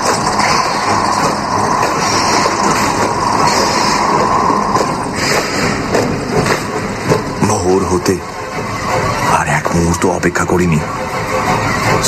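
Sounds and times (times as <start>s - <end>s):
dense noisy rumble: 0.0s - 8.8s.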